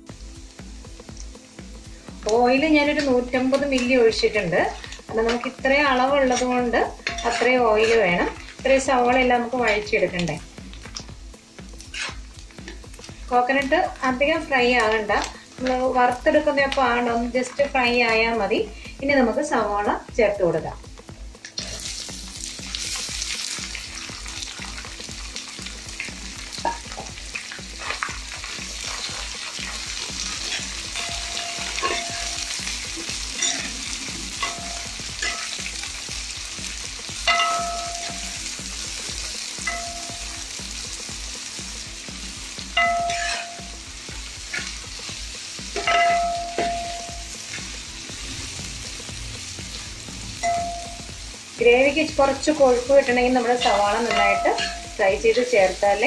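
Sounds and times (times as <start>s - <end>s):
onions sizzling in oil: 0.0s - 56.0s
spatula scraping pan: 6.3s - 8.6s, 11.8s - 12.8s, 27.8s - 32.2s, 43.1s - 43.6s
spatula ringing on metal pan: 7.0s - 7.4s, 30.9s - 32.6s, 34.4s - 35.6s, 37.2s - 38.4s, 39.6s - 40.4s, 42.7s - 43.8s, 45.8s - 47.3s, 50.4s - 51.2s, 53.6s - 55.0s.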